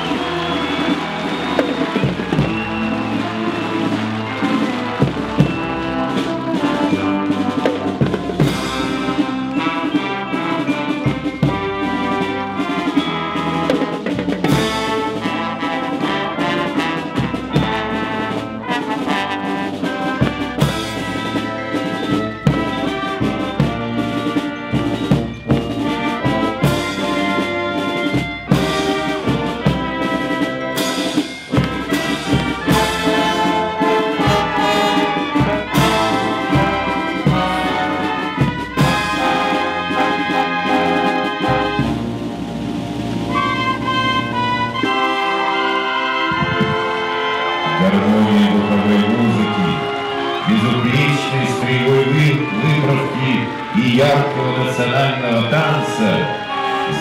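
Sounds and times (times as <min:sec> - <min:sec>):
drums striking a steady beat: 0:00.0 - 0:45.3
brass band playing: 0:00.0 - 0:57.0.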